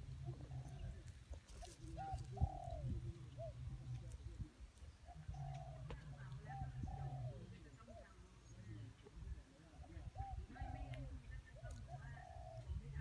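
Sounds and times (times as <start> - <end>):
doves cooing: 0.0 - 13.0.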